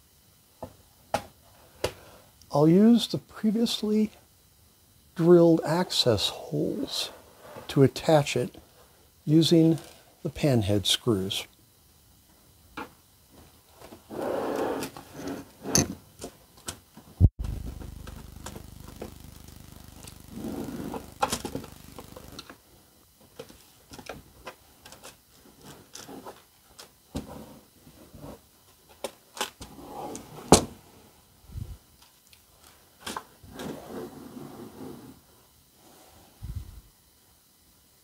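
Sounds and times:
board scraping: 14.1s - 15.9s, 20.3s - 21.4s, 33.5s - 35.2s.

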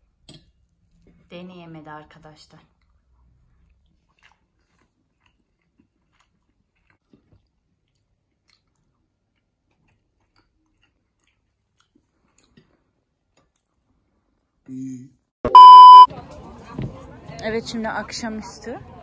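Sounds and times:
faint chewing: 2.6s - 14.6s.

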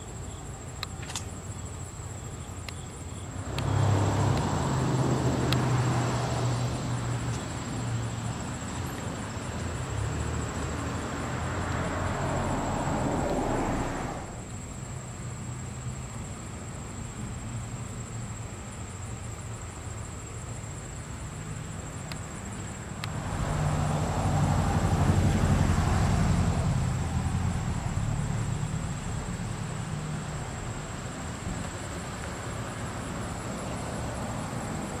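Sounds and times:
vehicle passing: 3.4s - 8.7s, 9.4s - 14.4s, 23.0s - 35.0s.

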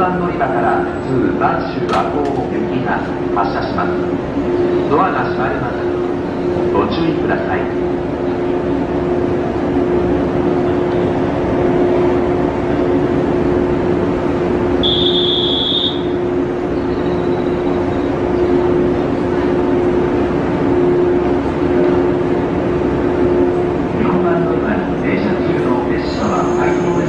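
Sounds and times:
station noise: 0.0s - 27.0s
train machinery humming: 0.0s - 27.0s
high electronic beep: 16.8s - 18.1s, 26.1s - 27.0s.

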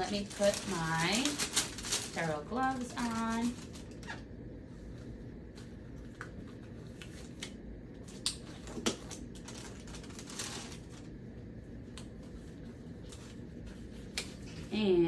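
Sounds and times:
glove wrapper crinkling: 0.0s - 4.2s, 8.1s - 11.2s
steady low hum: 0.0s - 15.0s.

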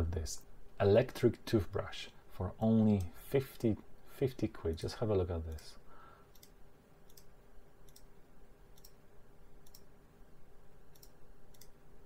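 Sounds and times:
low steady hum: 0.0s - 12.0s
computer mouse clicks: 6.3s - 8.1s, 8.7s - 9.0s, 9.6s - 9.9s, 10.9s - 11.8s.

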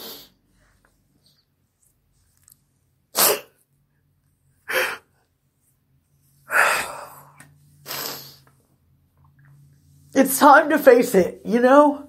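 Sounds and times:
sharp bursts of breath: 6.4s - 8.5s.

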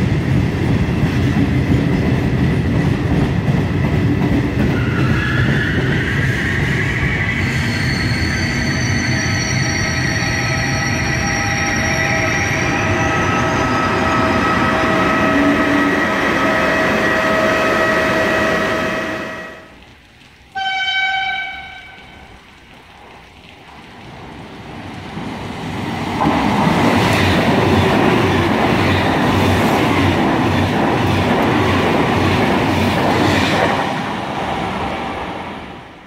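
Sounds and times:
high-speed train passing: 0.0s - 19.8s, 23.0s - 36.0s
train horn blast: 13.7s - 19.7s, 20.5s - 22.3s.

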